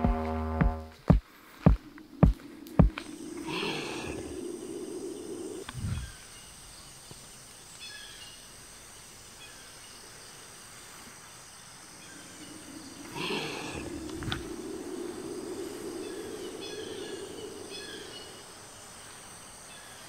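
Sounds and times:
low hum: 0.0 - 6.2, 12.0 - 18.6
high insect drone: 0.0 - 20.0
faint bird chirps: 1.8 - 20.0.

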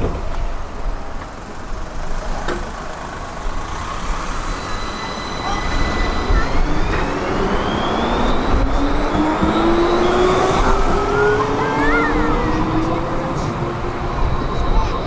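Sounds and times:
tram running along rails: 0.0 - 15.0
motor whine rising in pitch: 3.6 - 14.8.

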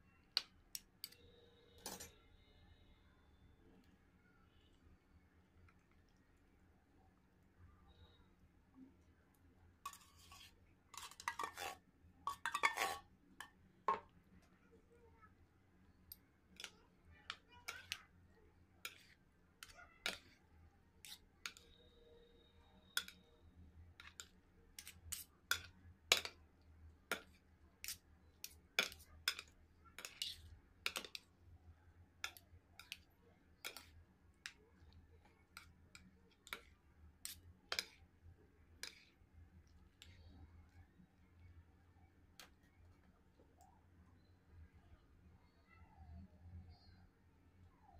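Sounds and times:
spoon scraping dish: 9.9 - 14.0, 18.8 - 20.4, 21.0 - 21.7, 24.0 - 26.4, 27.1 - 31.3, 33.6 - 34.6, 35.5 - 38.0, 38.8 - 39.2
metal spoons clinking on dish: 11.0 - 13.0.

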